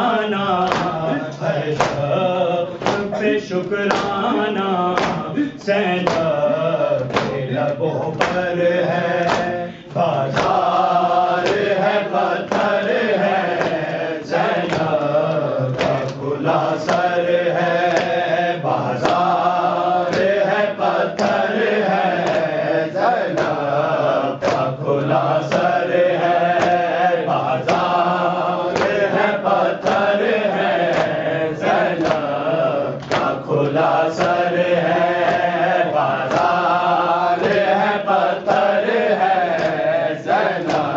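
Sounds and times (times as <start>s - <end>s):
sharp steady beat: 0.0s - 22.7s
voices chanting a lament: 0.0s - 40.9s.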